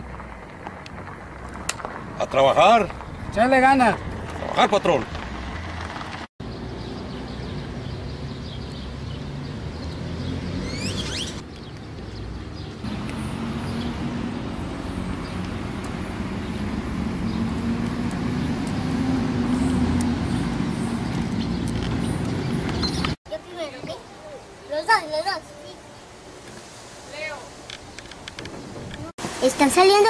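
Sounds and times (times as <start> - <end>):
street traffic: 0.0 - 30.0
high chirping: 9.8 - 11.9.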